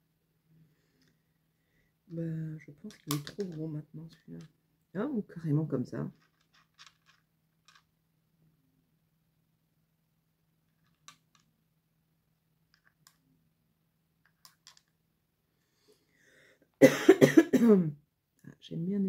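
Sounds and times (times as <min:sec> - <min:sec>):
seashells clicking on wood: 0:02.9 - 0:03.6, 0:06.2 - 0:07.8, 0:10.8 - 0:11.5, 0:14.2 - 0:14.9.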